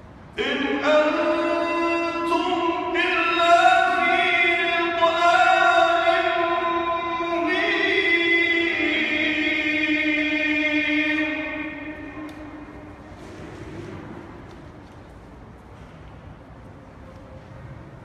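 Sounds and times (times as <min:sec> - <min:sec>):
man chanting melodically: 0:00.4 - 0:13.1.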